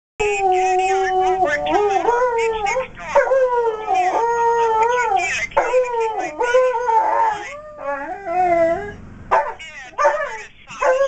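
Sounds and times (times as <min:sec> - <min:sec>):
dog howling: 0:00.2 - 0:11.0.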